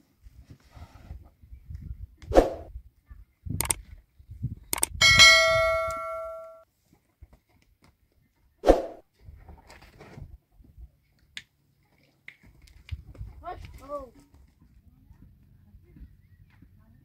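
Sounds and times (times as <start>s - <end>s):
metal clang ringing: 5.0s - 6.6s.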